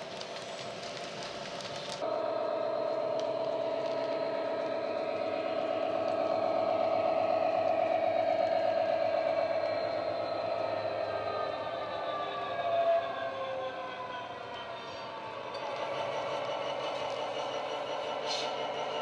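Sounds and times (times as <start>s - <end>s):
model wagon wheels clicking on track: 0.0s - 2.0s
synthesised diesel engine drone: 2.0s - 19.0s.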